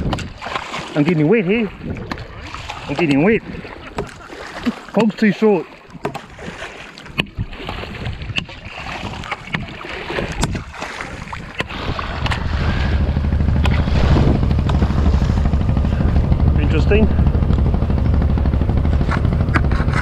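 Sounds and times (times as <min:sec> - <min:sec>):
water sloshing from wading: 0:00.0 - 0:20.0
steady low rumble: 0:11.4 - 0:20.0.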